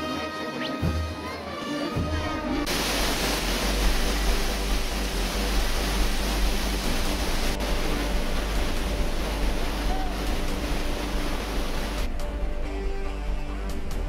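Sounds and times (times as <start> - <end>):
waterfall rushing over rock: 2.6 - 12.1.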